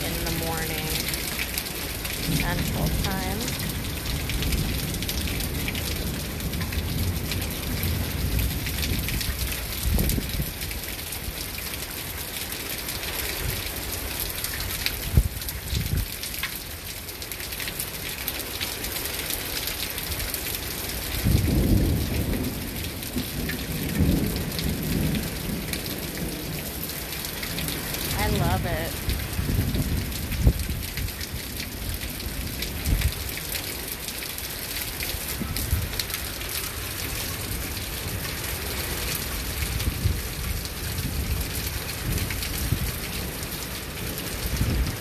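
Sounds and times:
rain falling: 0.0s - 45.0s
thunder rumbling: 21.2s - 26.6s.

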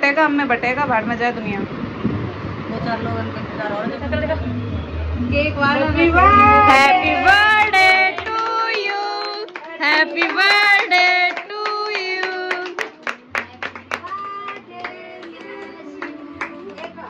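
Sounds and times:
women and children singing: 5.8s - 17.0s
people clapping: 6.4s - 17.0s.

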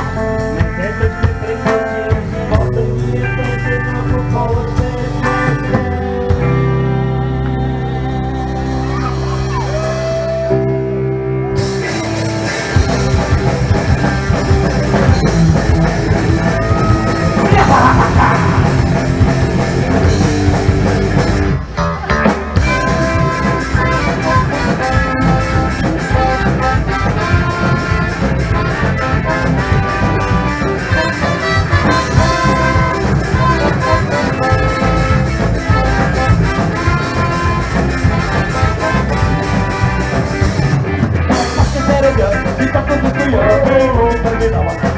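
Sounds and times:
punk band playing live: 0.0s - 44.9s.

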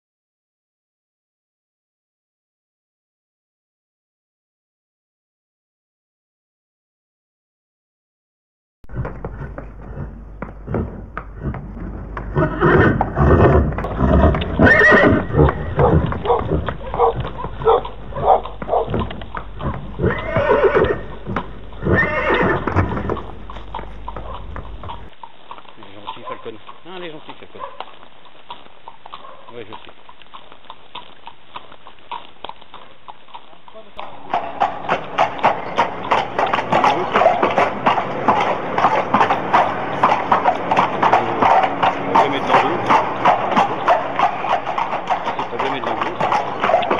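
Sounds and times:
horse whinnying: 8.9s - 25.1s, 34.0s - 46.9s
hooves clip-clopping on tarmac: 8.9s - 46.9s.

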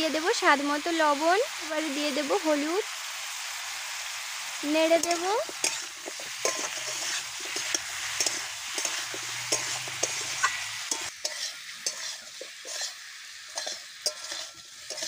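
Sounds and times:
vegetables sizzling in hot oil: 0.0s - 15.0s
spatula scraping and knocking pan: 4.9s - 15.0s.

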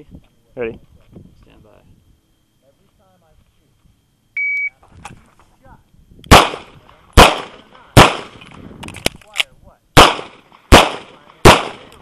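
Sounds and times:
pistol shots: 6.3s - 8.4s, 10.0s - 12.0s.

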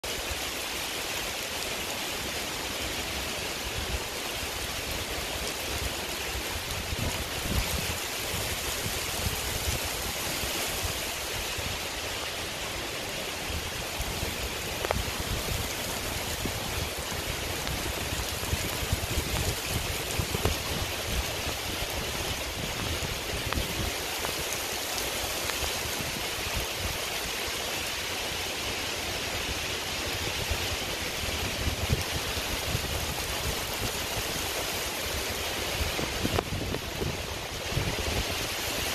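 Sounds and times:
heavy rain on leaves: 0.0s - 38.9s
wind rumble on microphone: 0.1s - 38.9s.

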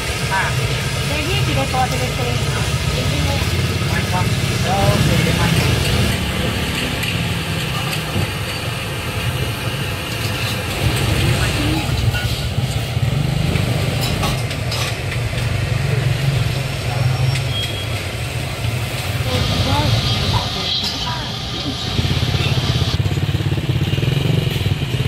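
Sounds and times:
low engine rumble: 0.0s - 25.0s
background voices: 0.3s - 8.3s.

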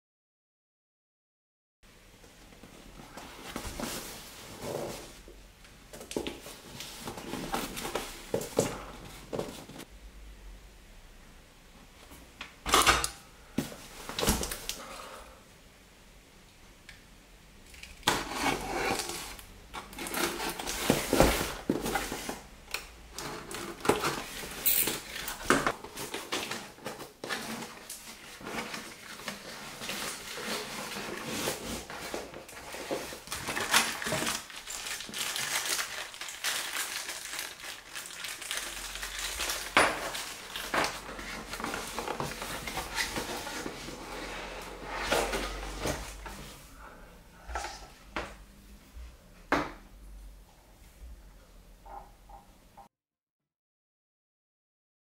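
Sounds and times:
cardboard scraping and rustling: 3.0s - 5.2s, 6.0s - 9.9s, 18.0s - 22.5s, 23.2s - 36.2s, 38.0s - 46.6s.

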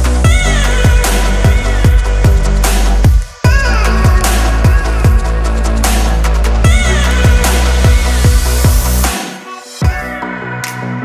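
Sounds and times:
electronic music with heavy bass: 0.0s - 11.0s.

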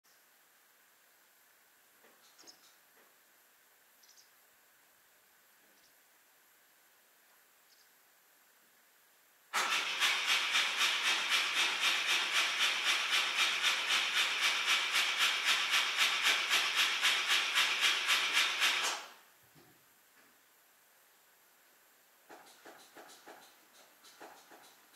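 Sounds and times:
engine starter cranking: 9.5s - 19.2s.

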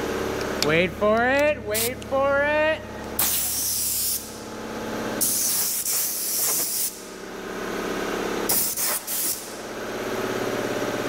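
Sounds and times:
hissing spray from nozzle: 3.2s - 4.2s, 5.2s - 7.0s, 8.5s - 9.4s.

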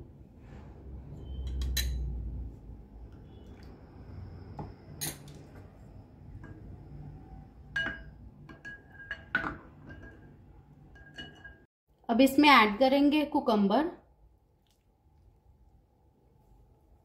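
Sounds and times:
wooden spoon clinking glass bowl: 7.7s - 11.7s.

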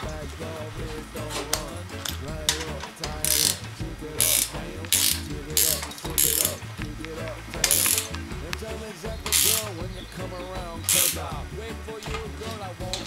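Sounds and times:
background music: 0.0s - 13.0s
ratchet tool clicking: 1.5s - 3.6s, 4.2s - 6.6s, 7.6s - 8.2s, 9.3s - 9.7s, 10.9s - 11.2s.

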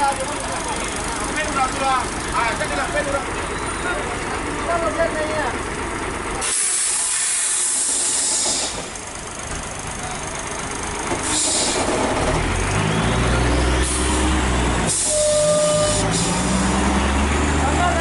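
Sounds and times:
diesel engine rumble: 0.0s - 18.0s
air brakes hissing: 6.4s - 9.0s, 11.1s - 12.2s, 13.7s - 16.8s.

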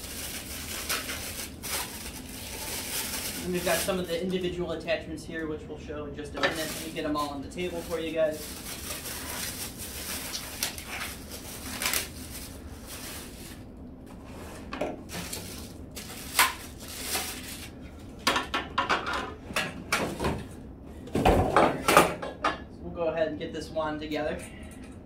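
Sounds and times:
plastic packaging crinkling: 0.0s - 4.5s, 6.4s - 13.7s, 15.1s - 17.8s.

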